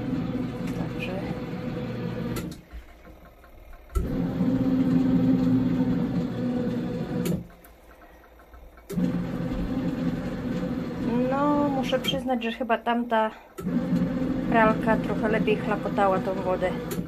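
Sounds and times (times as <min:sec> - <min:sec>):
washing machine motor humming: 0:00.0 - 0:17.0
washing machine click: 0:00.5 - 0:05.0, 0:06.8 - 0:17.0
faint ticking: 0:02.2 - 0:04.4, 0:07.2 - 0:13.9.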